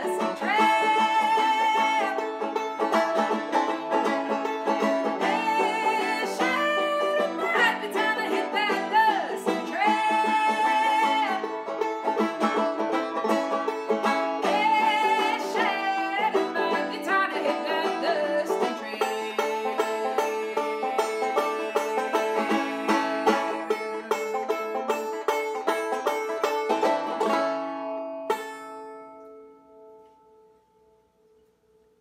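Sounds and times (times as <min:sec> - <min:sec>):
woman singing: 0:00.0 - 0:02.3, 0:05.2 - 0:11.5, 0:14.4 - 0:23.7
banjo played fast: 0:00.0 - 0:29.4.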